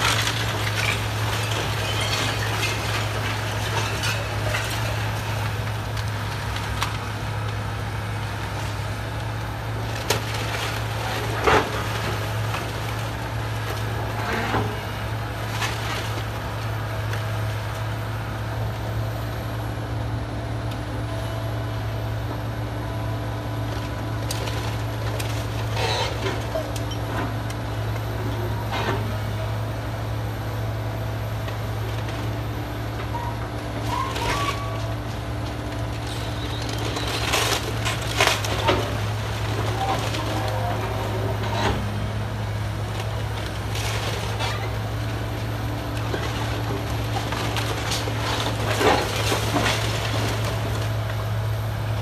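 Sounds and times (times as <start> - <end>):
timber cracking and crashing: 0.0 - 7.8, 9.2 - 17.6, 31.5 - 41.9, 42.9 - 51.4
falling debris: 0.0 - 8.9, 9.6 - 17.3, 31.8 - 51.3
excavator diesel engine drone: 0.0 - 52.0.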